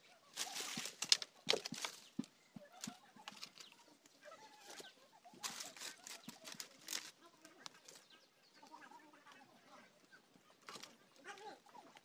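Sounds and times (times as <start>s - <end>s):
firewood knocking in a fire: 0.7s - 3.4s.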